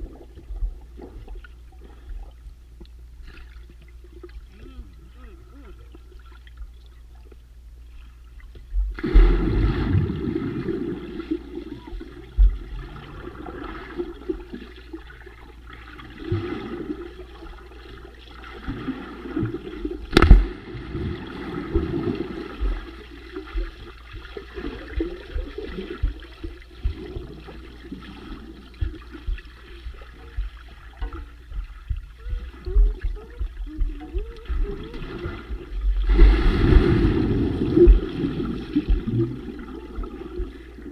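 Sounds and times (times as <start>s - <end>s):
underwater bubbles gurgling: 0.0s - 40.9s
person plunging into water: 8.9s - 11.4s, 18.7s - 22.8s, 35.0s - 40.5s.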